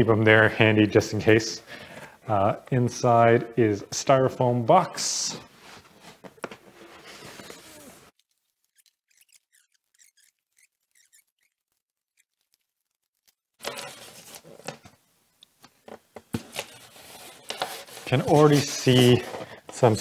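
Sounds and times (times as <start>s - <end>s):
foam lid scraping: 5.7s - 8.1s, 16.4s - 19.6s
styrofoam rubbing and squeaking: 6.1s - 14.7s, 16.5s - 20.0s.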